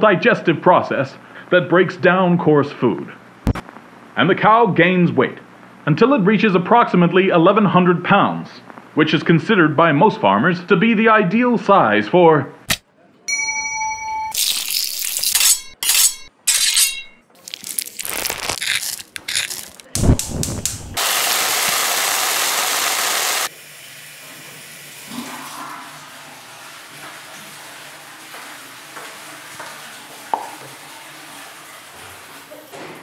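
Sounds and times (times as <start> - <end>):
knife cutting on board: 15.1 - 17.2, 18.2 - 21.0.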